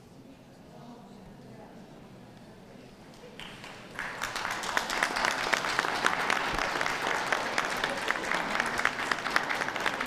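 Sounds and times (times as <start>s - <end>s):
crowd clapping: 3.3s - 10.0s.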